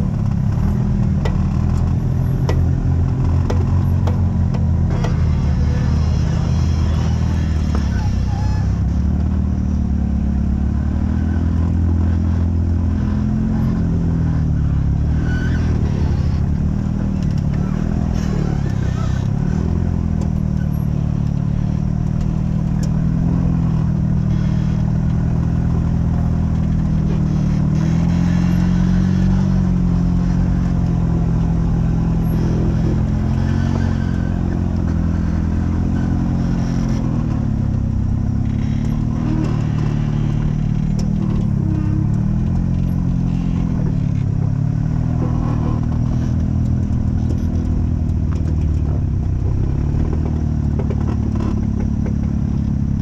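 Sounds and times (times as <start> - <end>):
off-road vehicle engine revving: 0.0 - 53.0.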